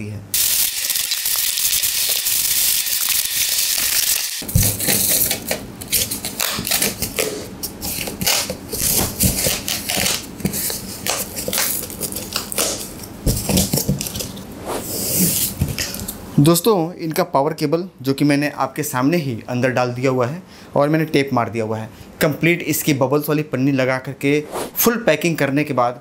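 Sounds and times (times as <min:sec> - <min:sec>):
plastic wrapping crinkling: 0:07.9 - 0:14.4.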